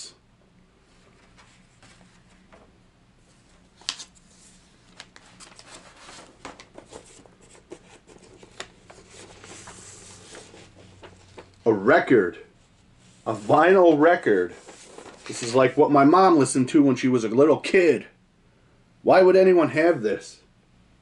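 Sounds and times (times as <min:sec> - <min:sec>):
paper and cardboard rustling: 0:00.9 - 0:02.7, 0:03.3 - 0:11.6, 0:13.2 - 0:15.9.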